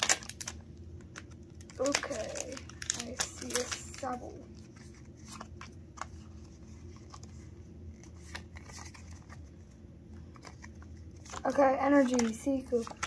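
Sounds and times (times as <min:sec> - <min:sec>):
cards being flicked through: 0:00.0 - 0:06.1
low steady hum: 0:00.0 - 0:13.0.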